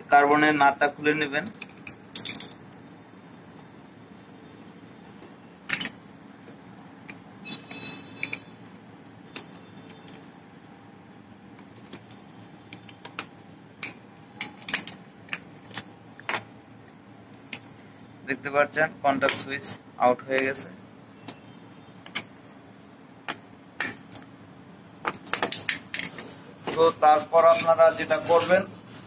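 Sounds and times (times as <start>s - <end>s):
metal tools clicking and clinking: 1.5s - 2.6s, 25.1s - 26.3s.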